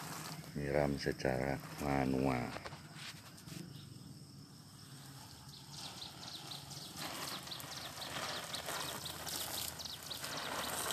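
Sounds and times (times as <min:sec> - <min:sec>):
water splashing onto plants: 0:05.7 - 0:10.9.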